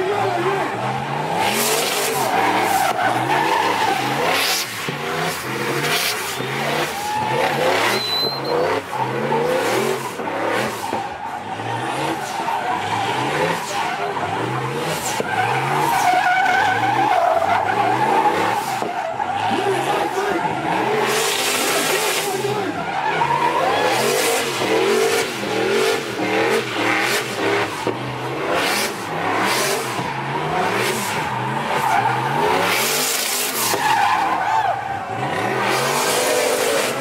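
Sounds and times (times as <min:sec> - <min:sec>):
car engine revving: 0:00.0 - 0:37.0
tyres squealing: 0:05.4 - 0:09.6.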